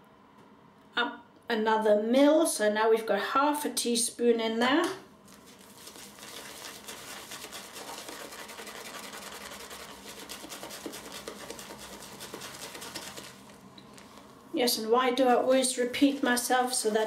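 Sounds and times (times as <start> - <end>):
shaving brush whipping lather: 5.4 - 13.6, 15.8 - 17.0.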